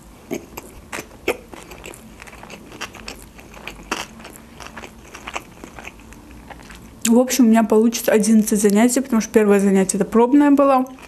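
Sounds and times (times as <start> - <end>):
close-miked chewing: 0.2 - 7.2, 10.7 - 11.0
wet mouth sounds: 0.2 - 7.2.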